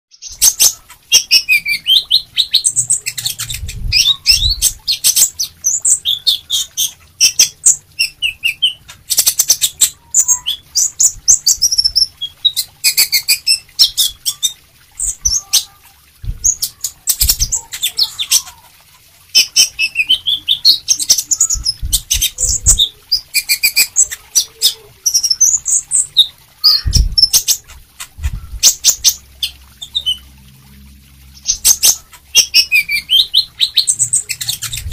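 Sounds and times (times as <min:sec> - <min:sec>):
bird singing chirps and twitters: 0:00.1 - 0:18.7, 0:19.3 - 0:30.3, 0:31.3 - 0:34.9
low thumps: 0:16.2 - 0:16.6.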